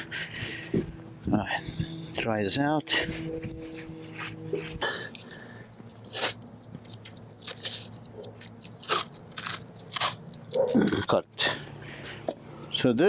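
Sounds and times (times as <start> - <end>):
masking tape crinkling: 3.4 - 11.2.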